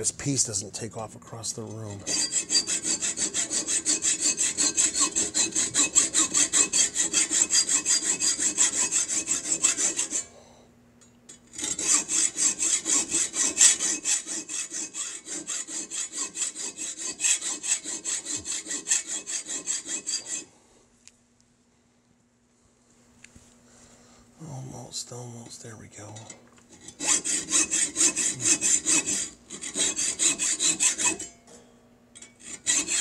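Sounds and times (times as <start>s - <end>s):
hacksaw cutting metal: 1.6s - 10.4s, 11.4s - 20.5s, 26.1s - 31.4s, 32.2s - 33.0s.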